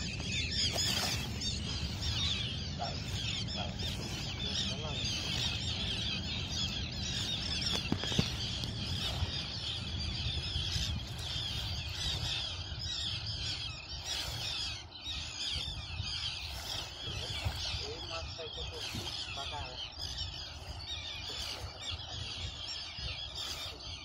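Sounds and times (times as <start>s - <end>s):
seabirds calling: 0.0s - 24.0s.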